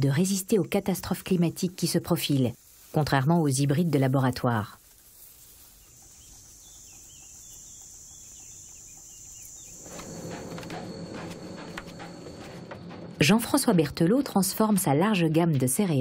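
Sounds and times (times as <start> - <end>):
faint bird chirps: 5.6 - 10.8
low hum: 9.7 - 14.9.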